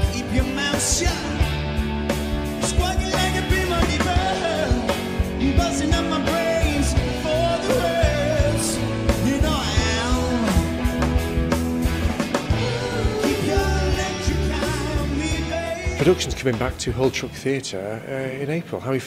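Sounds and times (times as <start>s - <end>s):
man singing: 0.0s - 1.6s, 2.6s - 11.0s, 12.5s - 17.1s
rock band playing: 0.0s - 17.6s.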